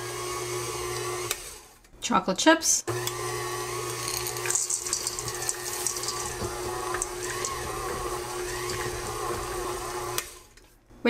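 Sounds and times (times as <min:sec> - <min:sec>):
stand mixer running: 0:00.0 - 0:01.7, 0:02.9 - 0:10.5
chips clattering into steel bowl: 0:04.0 - 0:07.6.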